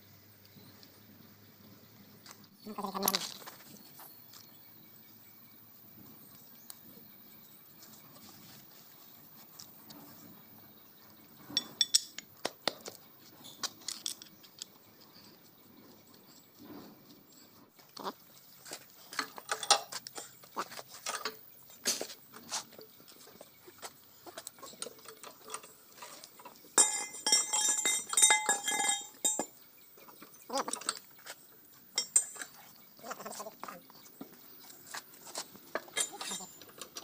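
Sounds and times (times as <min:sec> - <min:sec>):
metal clinks of hand tools: 0:11.5 - 0:12.3, 0:19.1 - 0:20.4, 0:24.6 - 0:29.6, 0:32.0 - 0:32.6, 0:35.7 - 0:37.0.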